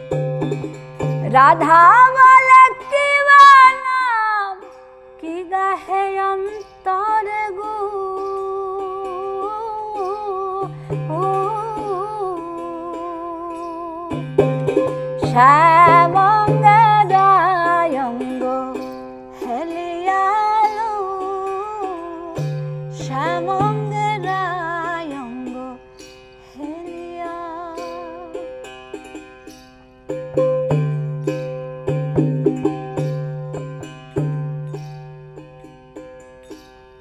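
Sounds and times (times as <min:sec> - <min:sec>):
small hand drum: 0:00.0 - 0:04.9, 0:08.2 - 0:37.0
plucked string drone: 0:00.0 - 0:37.0
woman singing: 0:01.2 - 0:14.4, 0:15.2 - 0:28.7.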